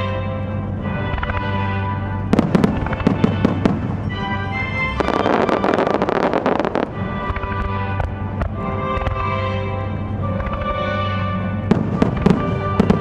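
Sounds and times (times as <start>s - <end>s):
music: 0.0s - 13.0s
fireworks bursting: 2.3s - 9.3s, 11.7s - 13.0s.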